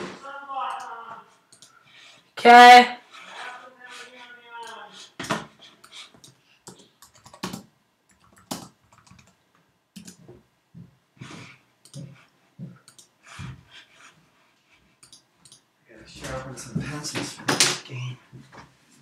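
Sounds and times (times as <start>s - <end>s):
keyboard typing: 1.5s - 1.7s, 6.1s - 9.4s, 10.0s - 10.2s, 12.8s - 13.1s, 15.0s - 15.6s.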